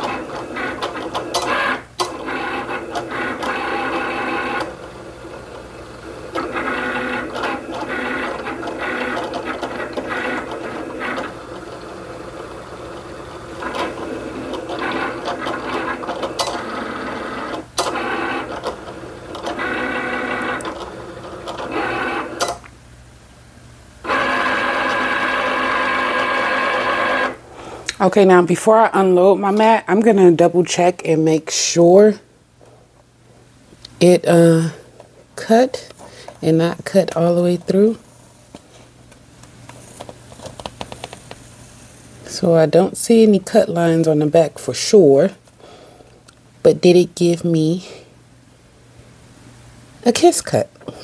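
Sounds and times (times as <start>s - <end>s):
cutting machine motors whirring: 0.0s - 22.6s, 24.0s - 27.4s.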